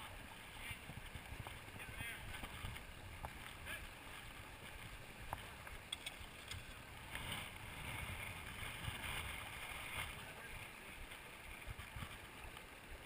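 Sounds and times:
river flowing over rocks: 0:00.0 - 0:13.0
faint clicks: 0:05.2 - 0:06.8.

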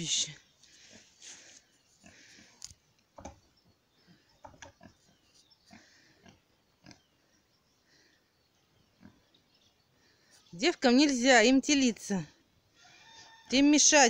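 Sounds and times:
pigs grunting softly: 0:02.0 - 0:02.6.

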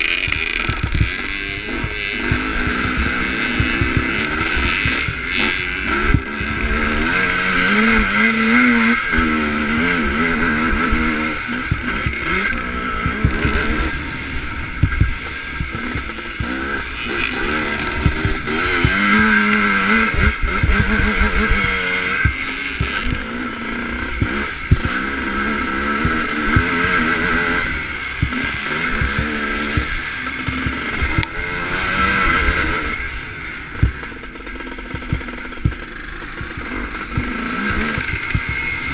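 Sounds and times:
knocks from bumps: 0:00.0 - 0:01.2, 0:01.8 - 0:05.3, 0:14.8 - 0:16.5, 0:29.0 - 0:31.3, 0:34.9 - 0:35.8, 0:37.9 - 0:38.7
two-stroke motorcycle engine revving: 0:00.0 - 0:38.9.

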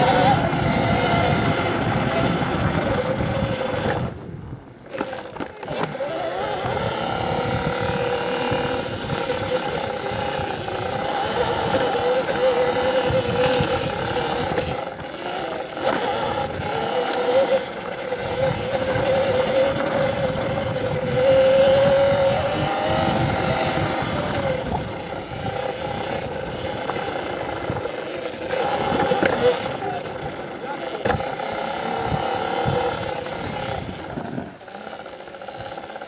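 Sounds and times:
electric motor whining: 0:00.0 - 0:36.0
tyre noise on rough trail: 0:00.0 - 0:36.0.

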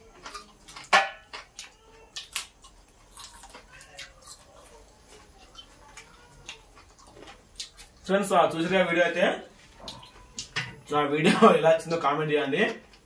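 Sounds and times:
crunching fried food: 0:00.0 - 0:08.7.

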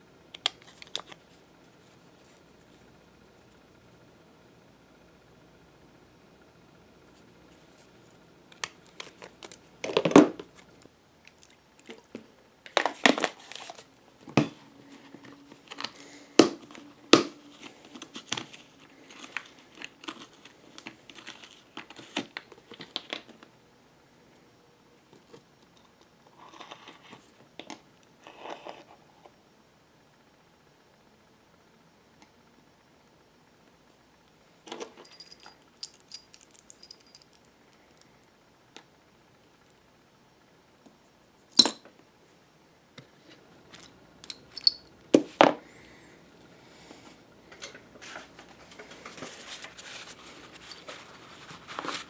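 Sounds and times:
clicks and crinkling: 0:08.5 - 0:13.9, 0:15.5 - 0:23.5
bottle cap twisting open: 0:44.3 - 0:44.9.

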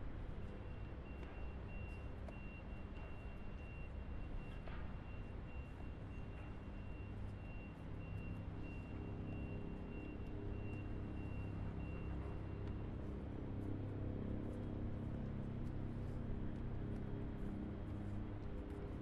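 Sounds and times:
low engine rumble: 0:00.0 - 0:19.0
reversing alarm beeping: 0:00.5 - 0:13.8.

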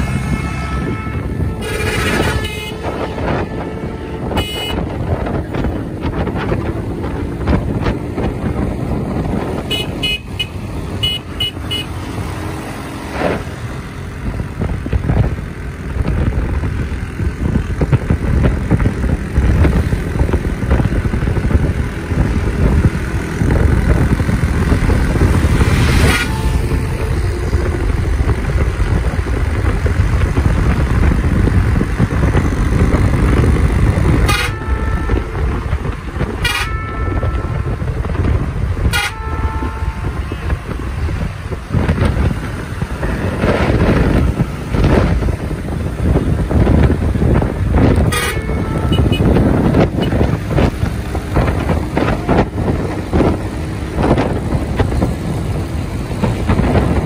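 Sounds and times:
bus diesel engine running: 0:00.0 - 0:57.0
road and traffic noise: 0:00.0 - 0:57.0
short horn toots: 0:00.2 - 0:05.0, 0:34.2 - 0:35.6, 0:38.8 - 0:40.6, 0:48.0 - 0:50.3.

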